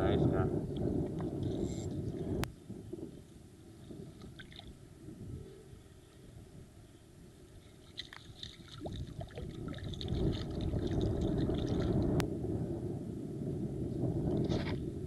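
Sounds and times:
wind rumble on microphone: 0.0s - 15.0s
water sloshing and splashing: 7.6s - 12.1s.

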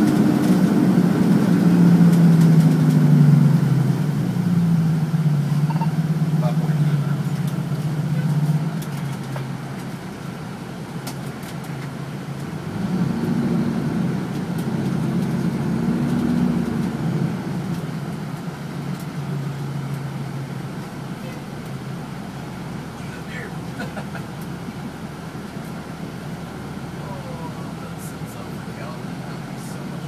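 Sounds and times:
diesel engine drone: 0.0s - 30.0s.

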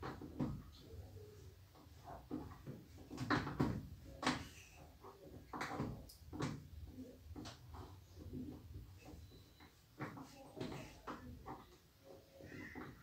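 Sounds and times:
laundry knocks and rustles: 0.0s - 13.0s.

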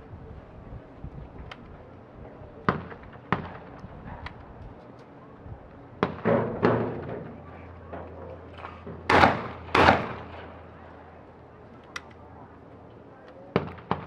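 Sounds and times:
shotgun reports with echo: 9.1s - 10.4s
faint sharp cracks: 11.8s - 12.3s.

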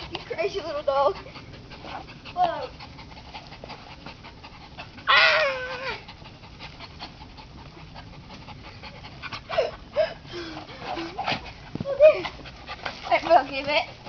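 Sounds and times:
dog panting: 0.0s - 14.0s
dog high cry: 5.0s - 6.0s.

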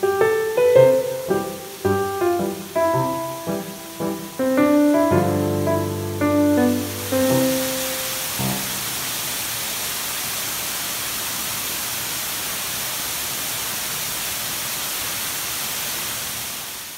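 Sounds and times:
piano note: 0.0s - 9.2s
running water rushing: 0.0s - 16.9s.

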